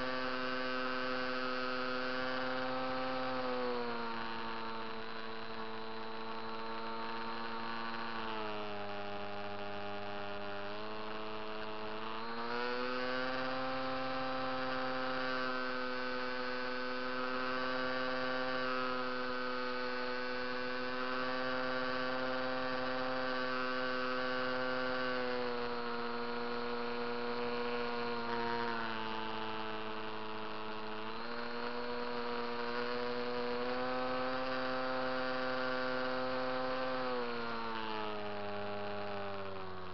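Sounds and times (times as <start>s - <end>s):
electric motor and propeller whining: 0.0s - 39.9s.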